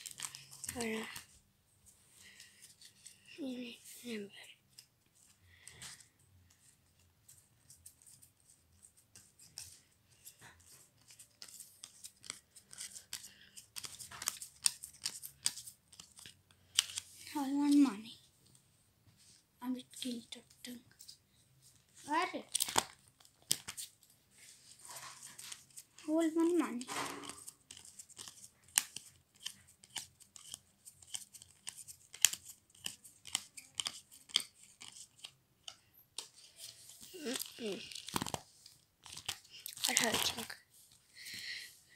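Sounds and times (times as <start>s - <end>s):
trading cards slapping and swishing: 0.0s - 1.3s, 7.3s - 17.1s, 22.1s - 24.0s, 24.8s - 40.5s
trading cards snapping: 22.5s - 23.8s, 37.3s - 38.4s.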